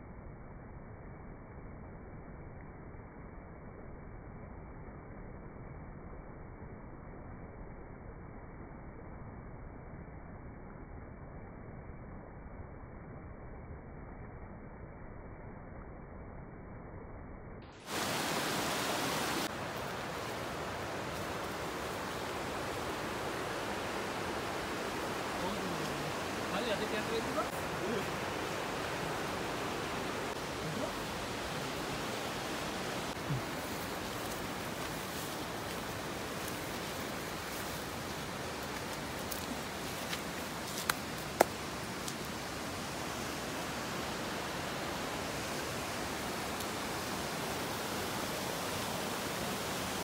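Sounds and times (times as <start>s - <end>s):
waterfall and stream rushing: 17.8s - 50.0s
rustling along brushy path: 19.4s - 43.7s.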